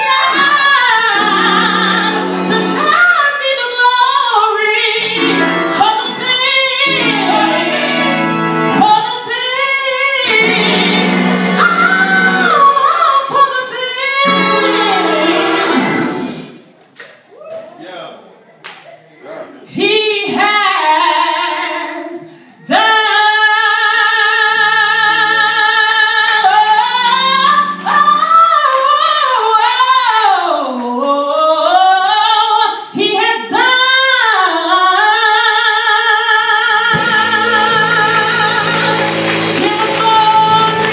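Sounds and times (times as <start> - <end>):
instrumental accompaniment: 0.0 - 3.1, 4.9 - 9.4, 10.2 - 16.8, 36.9 - 40.9
woman singing gospel: 0.0 - 16.2, 19.7 - 40.9.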